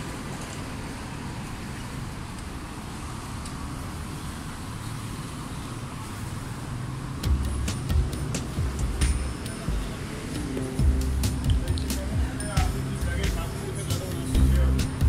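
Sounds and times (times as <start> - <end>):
rumble of passing vehicles: 0.0 - 15.0
heavy low thumps: 14.4 - 15.0.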